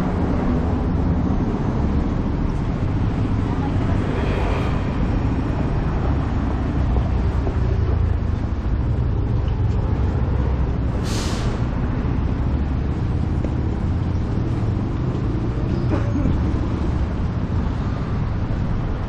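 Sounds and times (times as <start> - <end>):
road traffic rumble: 0.0 - 19.0
short burst of hiss: 11.0 - 11.6.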